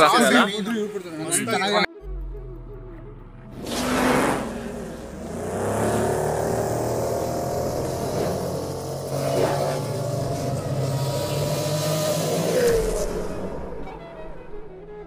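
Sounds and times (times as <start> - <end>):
electronic soundtrack: 1.3 - 11.6
synthetic engine hum: 1.9 - 14.9.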